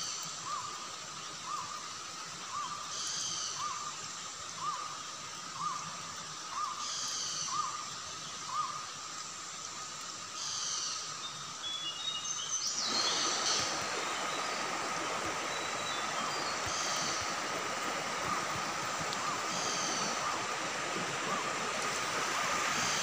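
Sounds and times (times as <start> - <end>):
rushing river water: 12.5 - 23.0.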